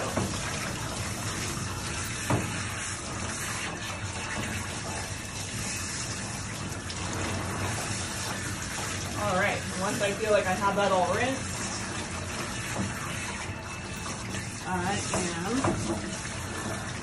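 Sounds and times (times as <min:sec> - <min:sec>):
water spraying from hose: 0:00.0 - 0:17.0.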